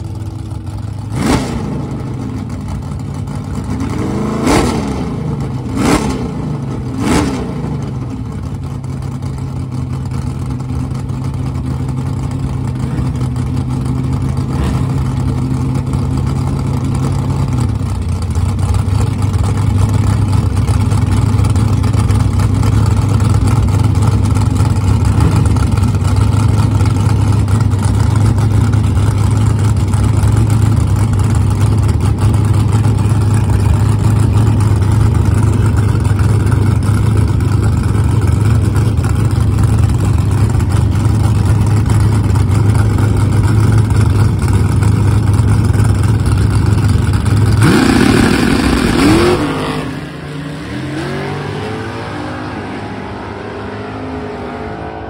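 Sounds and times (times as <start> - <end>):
drag car engine droning: 0.0 - 55.0
car accelerating hard: 29.8 - 55.0.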